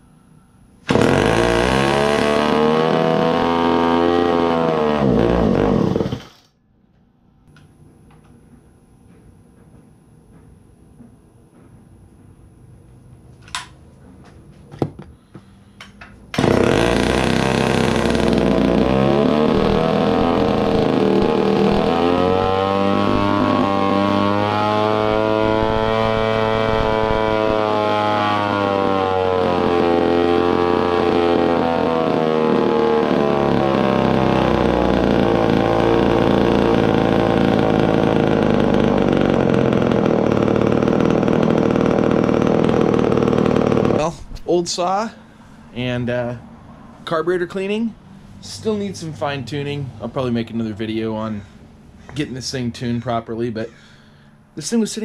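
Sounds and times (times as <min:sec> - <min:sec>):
chainsaw engine running: 0:00.9 - 0:06.5, 0:16.4 - 0:44.2.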